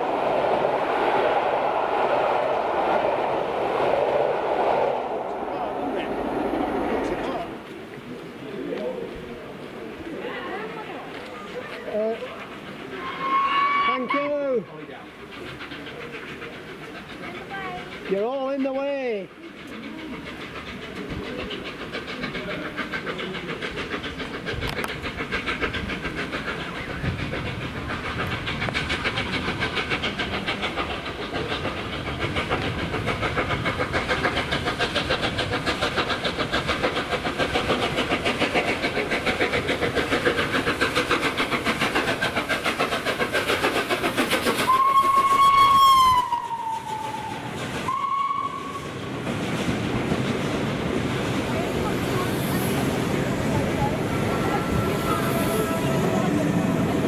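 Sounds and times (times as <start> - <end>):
steam locomotive exhaust beats: 0.0 - 57.0
steam whistle blasts: 13.0 - 14.3, 44.7 - 48.9.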